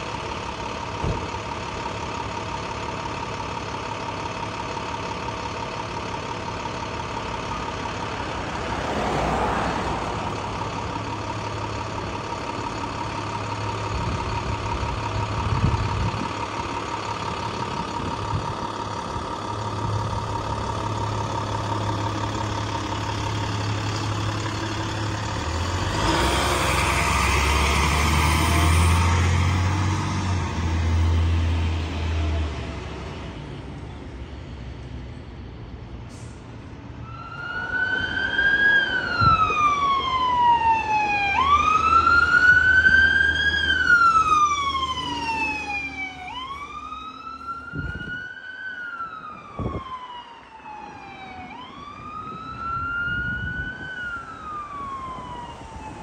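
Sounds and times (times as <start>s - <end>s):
ambulance engine rumbling: 0.0s - 56.0s
siren wailing: 37.0s - 56.0s.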